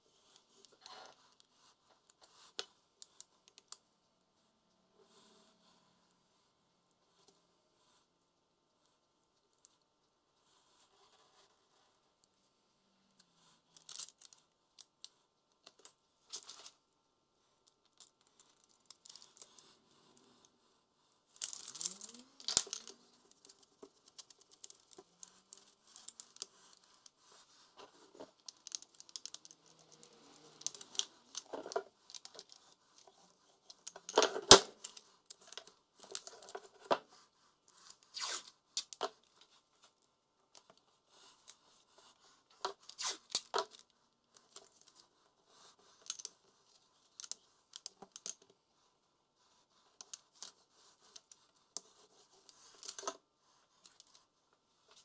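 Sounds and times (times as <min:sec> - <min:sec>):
tearing and scraping: 0:37.8 - 0:39.0, 0:42.8 - 0:43.8.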